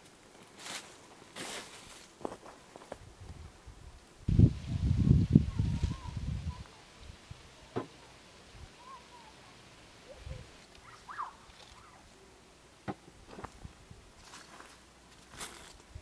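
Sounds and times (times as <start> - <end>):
faint bird chirps: 10.0 - 12.4.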